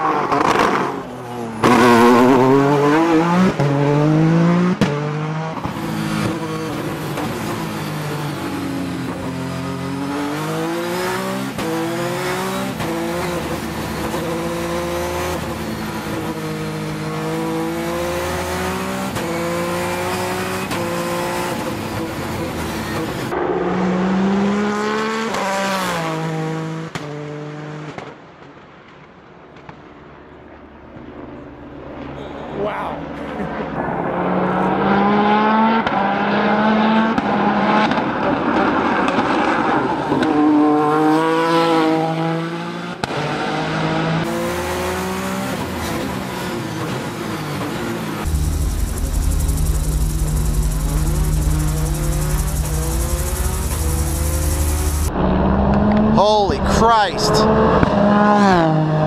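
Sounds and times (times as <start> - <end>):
race car engine revving: 0.0 - 27.7, 40.8 - 59.0.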